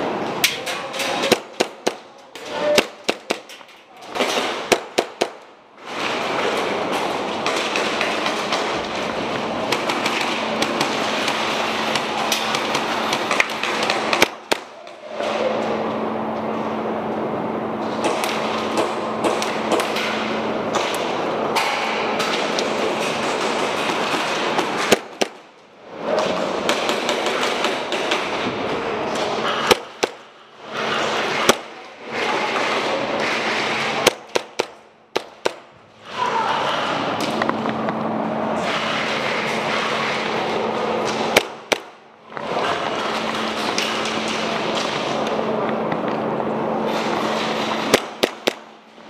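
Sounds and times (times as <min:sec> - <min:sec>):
loud rushing noise: 0:15.4 - 0:49.0
airsoft pistol shot: 0:47.9 - 0:48.6.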